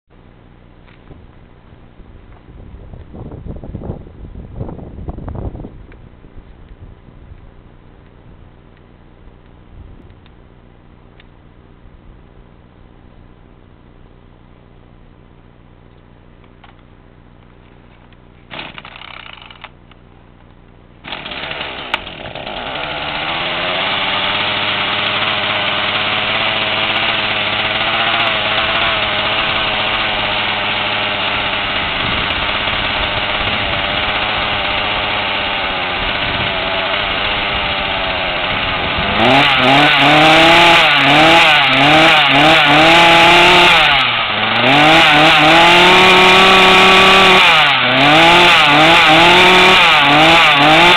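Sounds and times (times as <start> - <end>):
chainsaw starting idling and revving: 18.5 - 19.8, 21.0 - 50.9.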